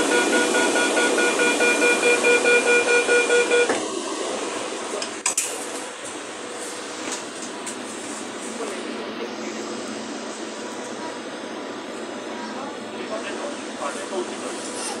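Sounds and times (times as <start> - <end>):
rapid pulsing warning beep: 0.0 - 3.7.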